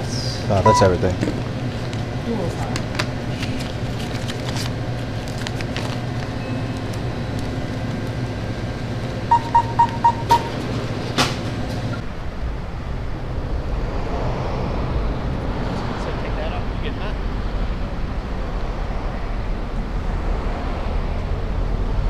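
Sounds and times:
store interior hum: 0:00.0 - 0:14.0
low outdoor rumble: 0:00.0 - 0:22.0
cash register beeps: 0:00.6 - 0:01.1, 0:06.4 - 0:07.2, 0:09.3 - 0:11.2.

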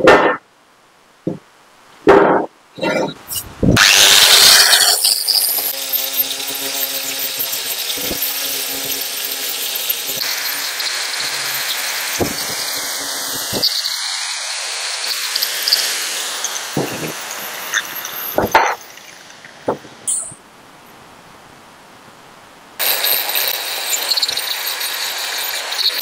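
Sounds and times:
power tool grinding hiss: 0:02.8 - 0:20.3, 0:22.8 - 0:26.0.

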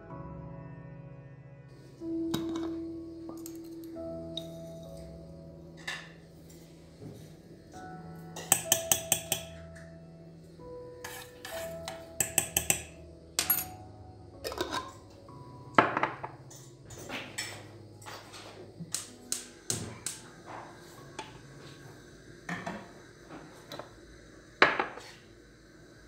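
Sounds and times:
metal spoon clinking on glass and metal: 0:08.4 - 0:09.6, 0:11.0 - 0:13.8
glass jar set down on counter: 0:15.8 - 0:16.3, 0:24.6 - 0:25.0.

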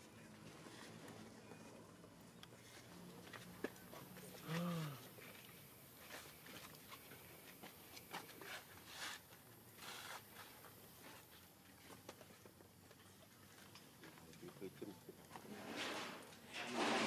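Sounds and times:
rustling and scuffing: 0:02.6 - 0:12.7.

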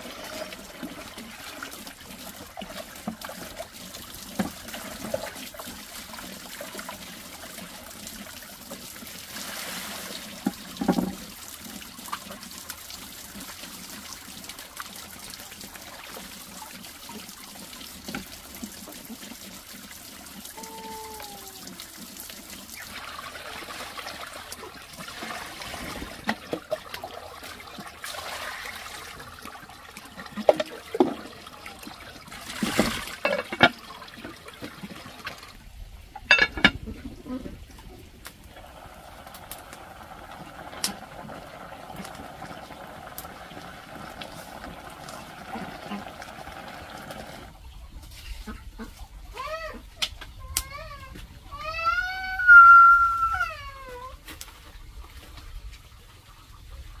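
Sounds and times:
water trickling into a jar: 0:00.0 - 0:37.8
water poured into a pot: 0:00.0 - 0:48.9.

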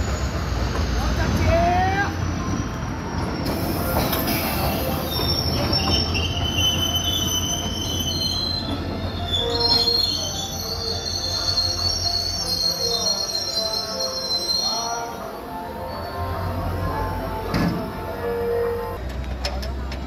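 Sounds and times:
train wheels rumbling on rail: 0:00.0 - 0:10.1
high-pitched wheel squeal: 0:01.8 - 0:17.1.

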